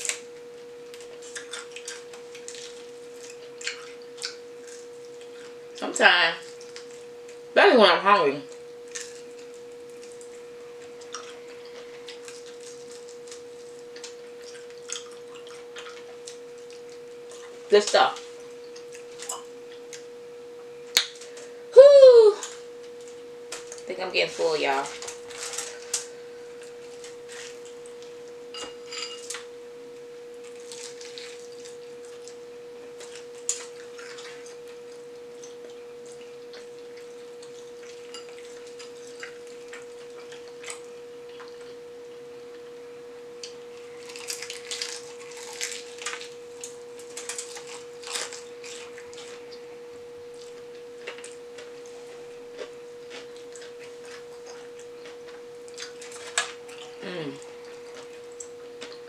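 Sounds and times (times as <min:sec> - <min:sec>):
person chewing crunchy food: 0:00.9 - 0:05.8, 0:08.6 - 0:17.6, 0:30.4 - 0:41.9, 0:43.4 - 0:49.7, 0:50.3 - 0:59.0.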